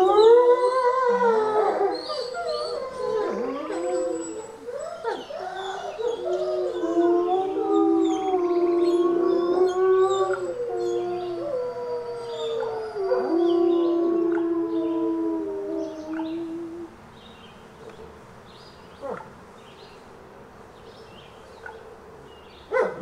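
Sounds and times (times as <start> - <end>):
wolves howling: 0.0 - 17.0
wolves yipping: 22.7 - 23.0.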